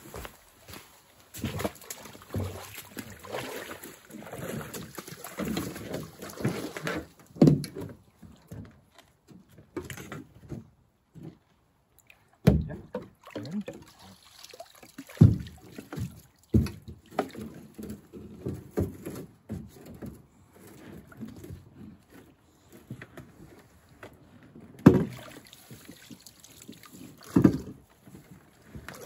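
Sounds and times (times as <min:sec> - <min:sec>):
light water sounds: 0:00.0 - 0:10.2, 0:11.2 - 0:18.6, 0:24.8 - 0:29.0
paddles knocking against canoe: 0:01.4 - 0:11.6, 0:15.0 - 0:26.0.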